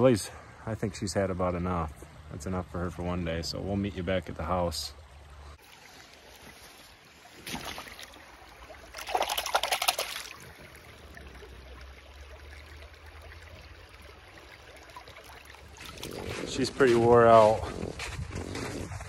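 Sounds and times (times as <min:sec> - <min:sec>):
stream trickling: 0:00.0 - 0:17.5
hand splashing in water: 0:07.3 - 0:08.2, 0:08.8 - 0:10.5.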